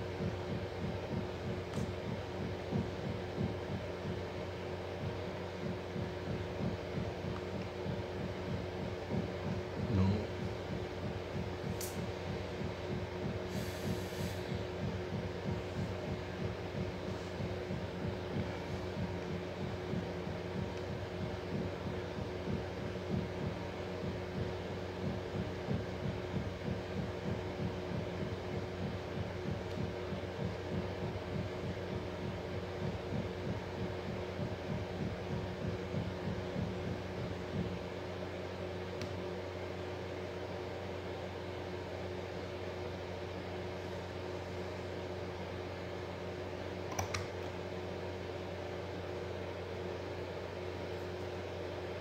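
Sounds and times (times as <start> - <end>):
low pulsing mechanical hum: 0.0 - 52.0
small click: 11.8 - 12.0, 46.9 - 47.5.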